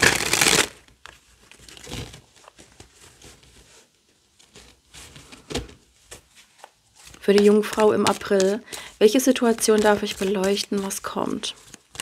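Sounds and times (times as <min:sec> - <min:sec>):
cards riffling: 0:00.0 - 0:00.8
cards sliding and flicking: 0:06.6 - 0:11.0.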